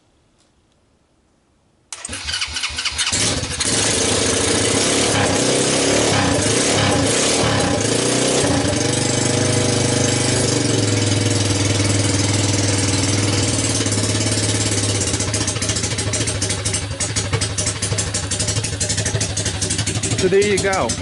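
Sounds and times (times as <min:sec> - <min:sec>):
atv engine idling unevenly: 0:03.0 - 0:21.0.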